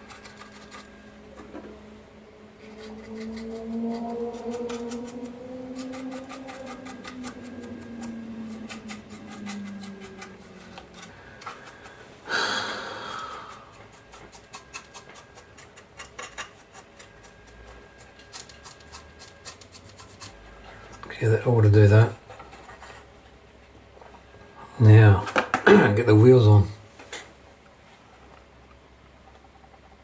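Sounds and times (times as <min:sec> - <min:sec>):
paintbrush scratching on plastic: 0:00.0 - 0:01.0, 0:02.6 - 0:11.9, 0:13.5 - 0:20.5
puff of breath: 0:12.2 - 0:13.6.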